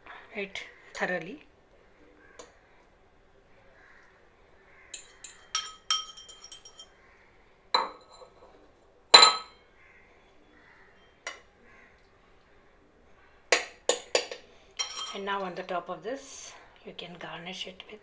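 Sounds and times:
metal fork clinking on ceramic bowl: 0:05.0 - 0:07.0, 0:14.2 - 0:15.2.

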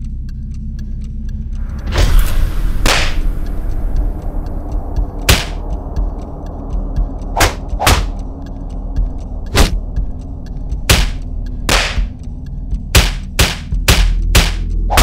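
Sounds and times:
low rumbling drone: 0:00.0 - 0:15.0
sharp whooshing hits: 0:01.8 - 0:04.2, 0:07.3 - 0:08.2.

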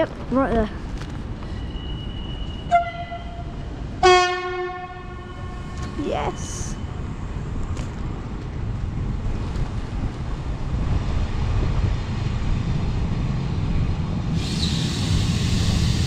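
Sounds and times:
train wheels rumbling: 0:05.1 - 0:16.0
train hiss: 0:14.3 - 0:16.0.

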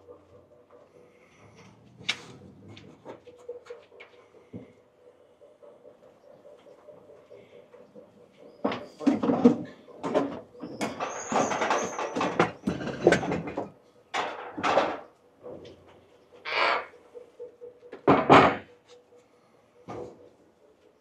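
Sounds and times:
knocking and clattering of items: 0:08.0 - 0:15.8, 0:17.8 - 0:18.8, 0:19.9 - 0:20.3.

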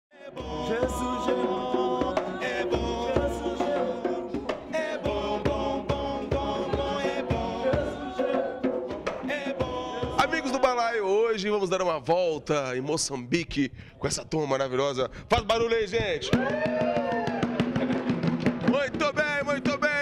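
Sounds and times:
music with steady drum beat: 0:00.4 - 0:10.7, 0:16.3 - 0:20.0.

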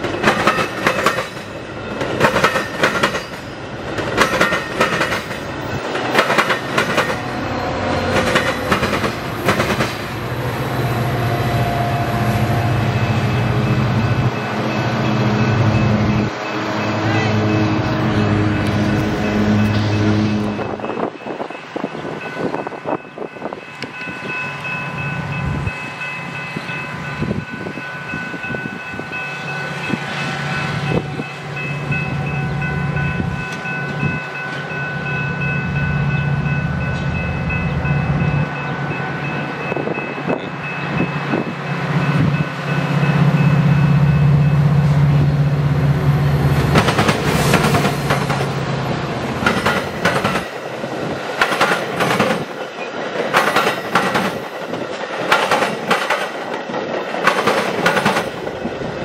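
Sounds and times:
train wheels clattering over rails: 0:00.0 - 0:07.4, 0:08.0 - 0:10.2, 0:46.6 - 0:48.6, 0:49.2 - 0:58.7
train engine rumble: 0:00.0 - 0:59.0.

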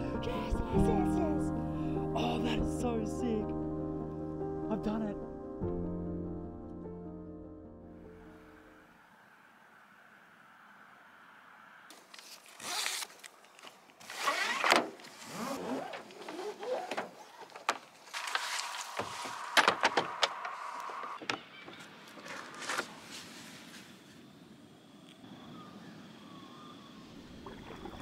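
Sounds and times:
gear rustling: 0:11.9 - 0:21.2
sharp clicks and knocks: 0:18.9 - 0:21.4.

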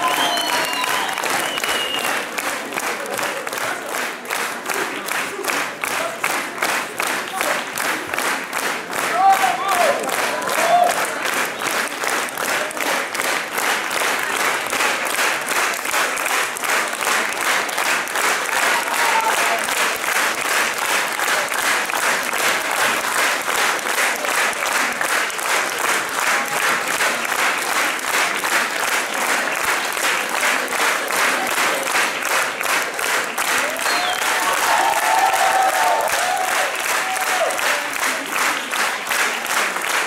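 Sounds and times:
audience clapping in rhythm: 0:00.0 - 0:40.0.

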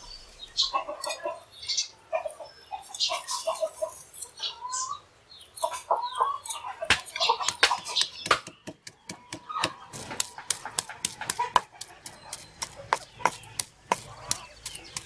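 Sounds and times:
stone pestle pounding in mortar: 0:06.9 - 0:15.0.

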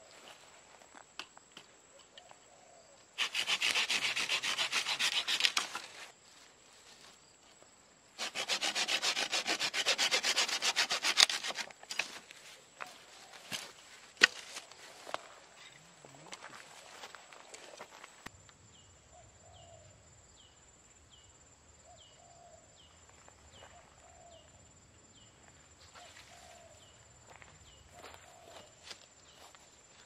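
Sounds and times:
saw cutting dry branch: 0:03.2 - 0:06.1, 0:08.2 - 0:12.3, 0:13.5 - 0:14.8.

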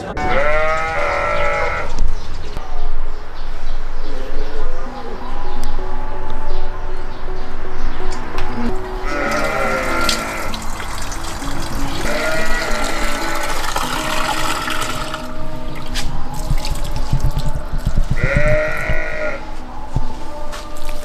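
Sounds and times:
background music: 0:00.0 - 0:21.0
sheep bleating: 0:00.2 - 0:02.0, 0:08.6 - 0:10.7, 0:12.0 - 0:15.3, 0:18.2 - 0:19.6.

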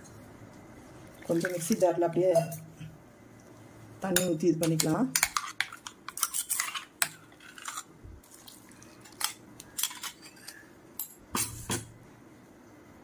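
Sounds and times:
utensils and dishes clinking: 0:09.0 - 0:11.9.

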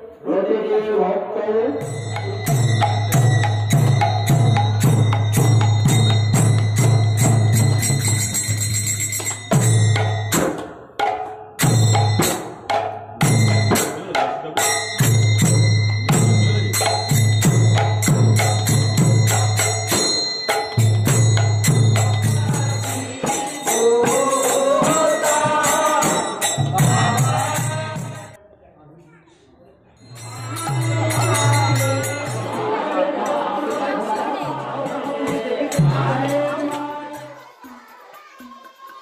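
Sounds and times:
ringing metal cymbals: 0:01.8 - 0:10.9, 0:11.6 - 0:28.4, 0:30.0 - 0:39.0
barrel drums beating: 0:01.8 - 0:22.7
voices chanting: 0:30.2 - 0:39.0.

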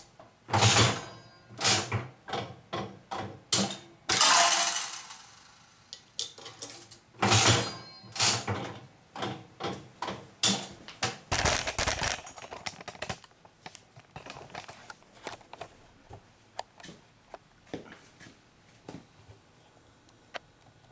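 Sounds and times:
slot machine reels clunking: 0:00.5 - 0:02.0, 0:03.6 - 0:05.7, 0:07.2 - 0:08.6.

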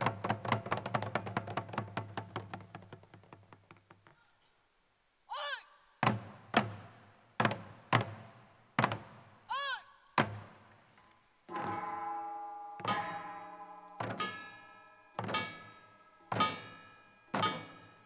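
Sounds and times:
barrel drums struck heavily: 0:11.5 - 0:14.6.

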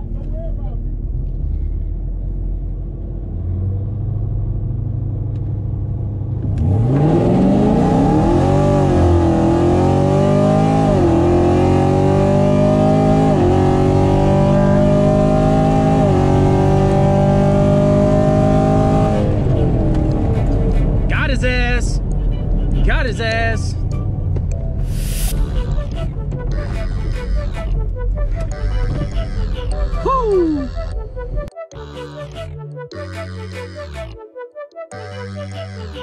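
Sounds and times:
car engine revving through upshifts: 0:06.4 - 0:21.0.

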